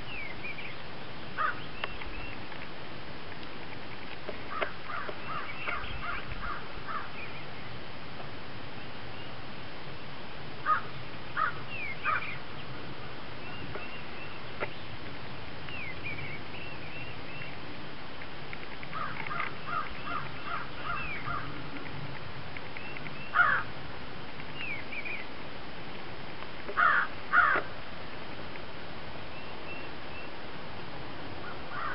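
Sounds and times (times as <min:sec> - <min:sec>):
birds calling: 0:00.0 - 0:02.7, 0:03.9 - 0:07.8, 0:10.6 - 0:22.0, 0:22.6 - 0:23.7, 0:24.4 - 0:25.4, 0:26.6 - 0:27.8, 0:29.2 - 0:30.4, 0:31.4 - 0:31.9.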